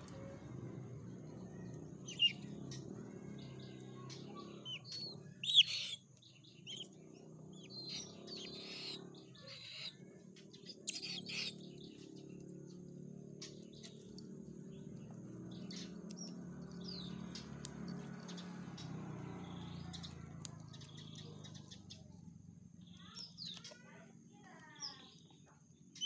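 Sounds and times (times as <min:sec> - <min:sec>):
eagle chick chirping calls: 0:02.0 - 0:02.5, 0:04.6 - 0:06.0, 0:06.6 - 0:07.0, 0:07.6 - 0:10.0, 0:10.6 - 0:11.6.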